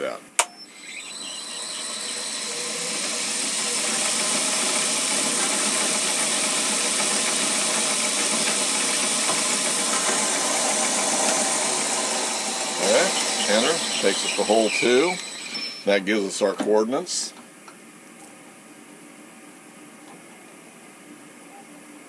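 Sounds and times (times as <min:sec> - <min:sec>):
drill bit cutting aluminum: 0:00.6 - 0:16.3
milling machine spindle running: 0:00.6 - 0:16.3.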